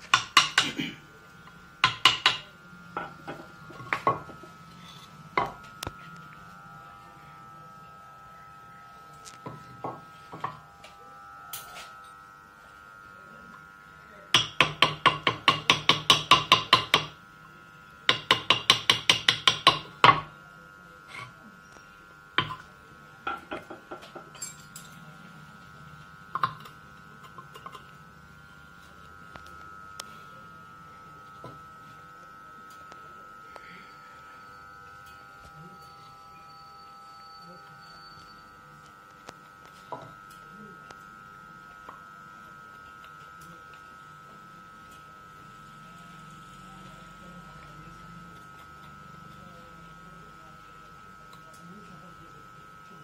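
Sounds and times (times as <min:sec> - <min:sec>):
hammer tapping chisel into wood: 0:00.0 - 0:00.8, 0:01.8 - 0:02.4, 0:14.4 - 0:17.1, 0:18.1 - 0:20.2.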